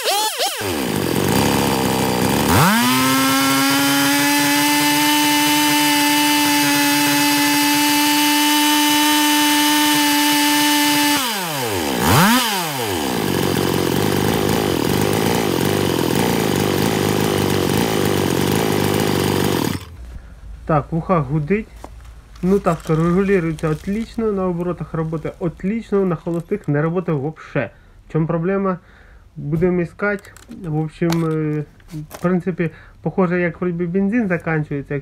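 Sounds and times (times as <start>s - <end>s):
chainsaw engine revving: 0.0s - 20.0s, 22.4s - 25.3s.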